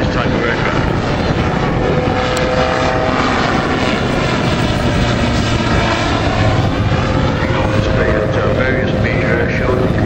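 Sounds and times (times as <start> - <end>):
aircraft engine and propeller: 0.0 - 10.0.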